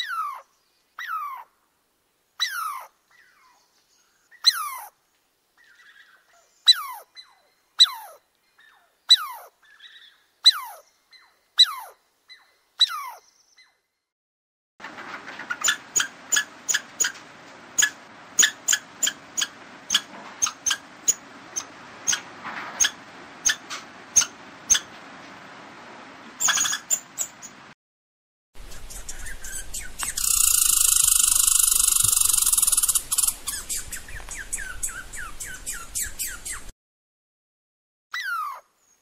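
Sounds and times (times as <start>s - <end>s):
squirrel chirping: 15.6s - 17.2s, 17.8s - 23.6s, 24.2s - 24.9s, 26.4s - 27.6s, 28.6s - 36.7s.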